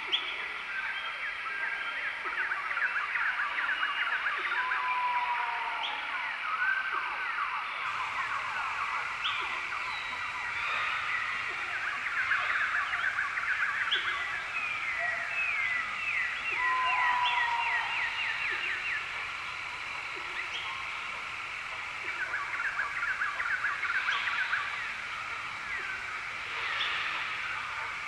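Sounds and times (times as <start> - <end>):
long steady bird whistle: 0.0 - 28.0
birds chirping and singing: 7.6 - 28.0.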